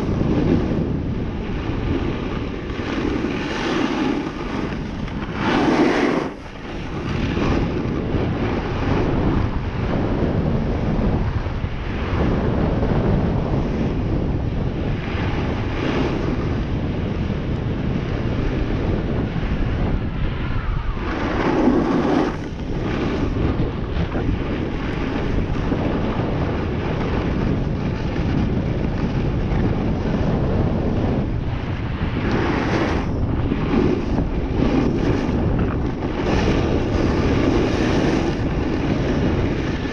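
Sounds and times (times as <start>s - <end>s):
wind buffeting microphone: 0.0s - 39.9s
skis sliding on snow: 1.4s - 9.0s, 21.0s - 30.3s, 32.1s - 39.9s.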